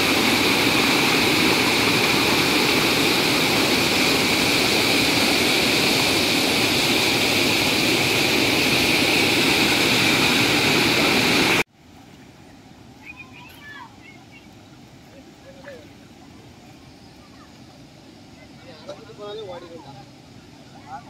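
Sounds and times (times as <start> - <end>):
floodwater rushing over rocks: 0.0 - 11.6.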